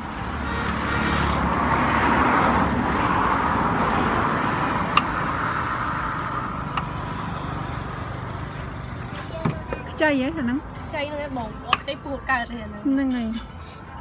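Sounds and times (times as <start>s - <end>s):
vehicle passing by: 0.0s - 10.7s.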